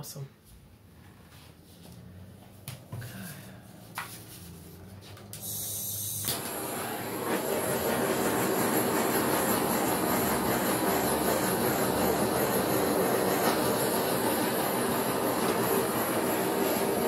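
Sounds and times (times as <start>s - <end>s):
torch flame roaring: 4.4s - 17.0s.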